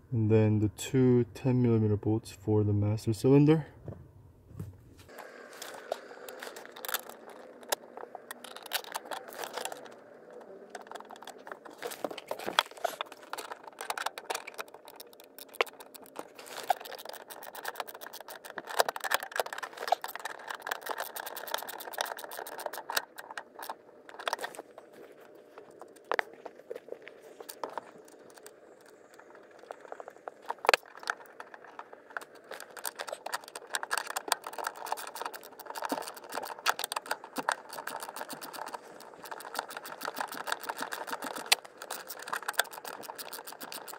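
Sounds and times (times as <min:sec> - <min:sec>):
ratchet clicking: 0:13.4 - 0:23.7, 0:32.4 - 0:43.9.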